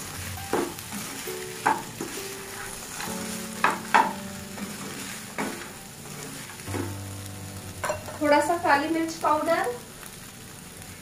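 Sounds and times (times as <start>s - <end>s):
potatoes sizzling in a pan: 0.0s - 11.0s
spatula scraping and knocking pan: 0.4s - 7.0s.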